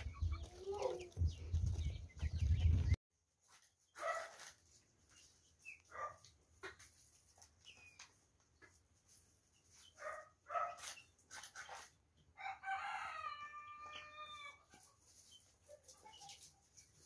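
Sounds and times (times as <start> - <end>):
poultry clucking: 0.0 - 17.0
rooster crowing: 12.4 - 14.6.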